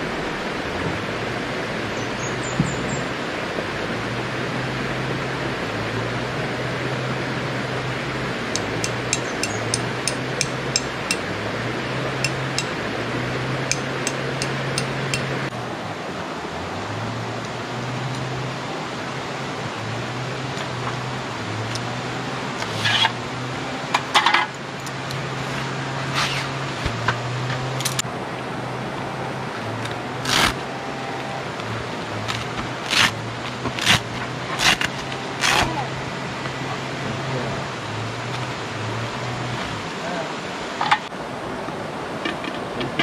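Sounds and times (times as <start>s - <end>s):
metal poles clacking: 8.6s - 11.3s, 12.2s - 12.8s, 13.7s - 15.5s.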